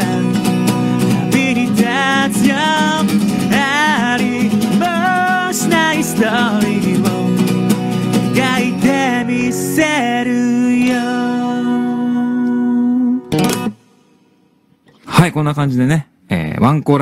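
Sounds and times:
man singing with vibrato: 0.0 - 13.4
strummed acoustic guitar: 0.0 - 15.1.

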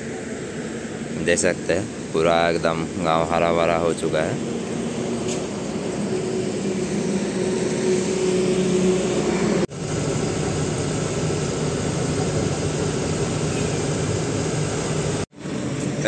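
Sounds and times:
truck diesel engine running: 0.0 - 16.0
vehicle engine drone: 0.0 - 16.0.

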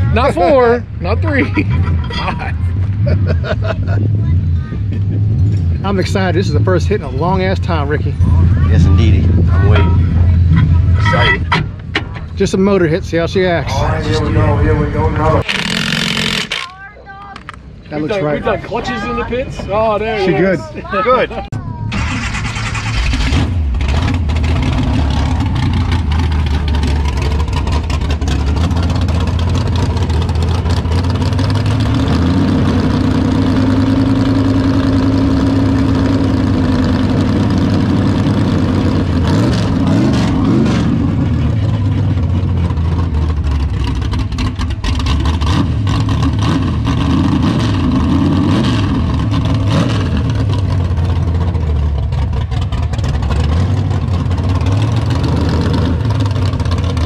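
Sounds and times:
car engine idling and revving: 0.0 - 57.0.

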